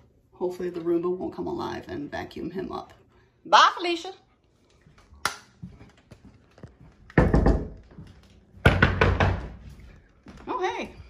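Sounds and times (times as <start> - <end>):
knocking on wooden door: 7.2 - 7.8, 8.6 - 9.6.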